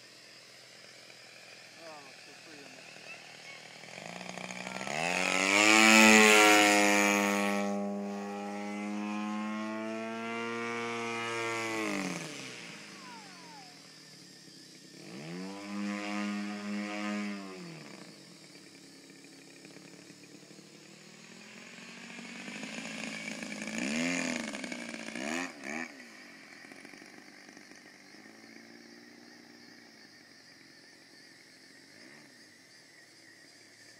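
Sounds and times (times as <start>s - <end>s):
model plane engine revving: 0.0s - 33.9s.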